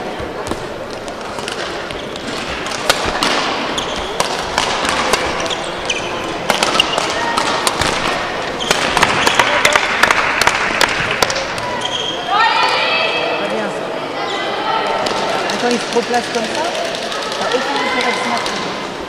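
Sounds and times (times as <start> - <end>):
murmur of voices: 0.0 - 19.0
racket hitting shuttlecock: 0.4 - 11.7.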